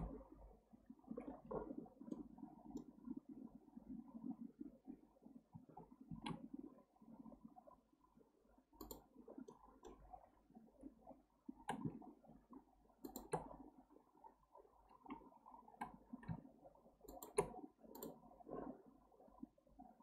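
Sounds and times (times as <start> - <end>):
mouse and keyboard clicks: 8.8 - 9.0, 13.0 - 13.5, 17.1 - 18.2.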